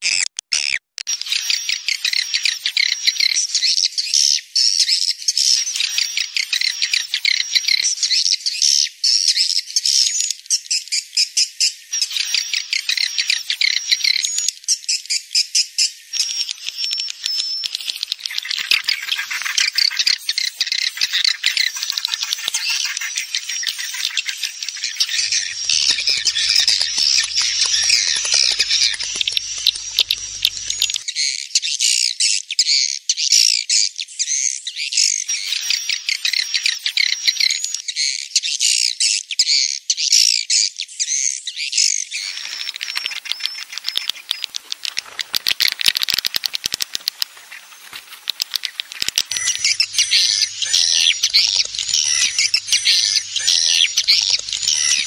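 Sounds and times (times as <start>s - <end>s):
swiftlets chirping: 16.2s - 31.0s, 42.2s - 55.0s
wing flapping: 17.8s - 31.0s, 42.2s - 55.0s.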